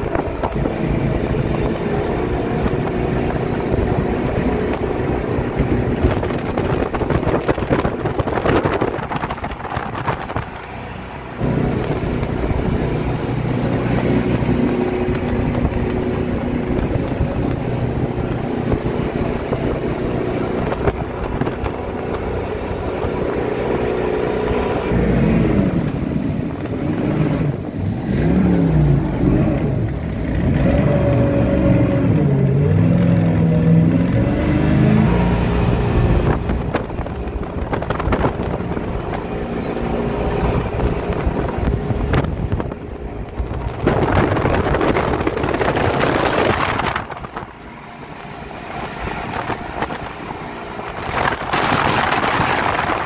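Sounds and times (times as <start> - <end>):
outboard motor running: 0.0 - 53.0
bursts of rushing noise: 34.0 - 53.0.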